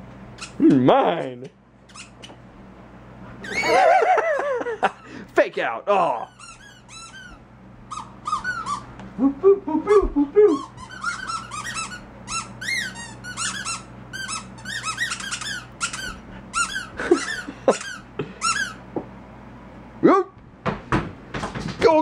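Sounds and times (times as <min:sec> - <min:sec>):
squeaky toy squeaking: 0:01.9 - 0:02.3, 0:03.4 - 0:03.7, 0:06.2 - 0:08.9, 0:10.5 - 0:18.8.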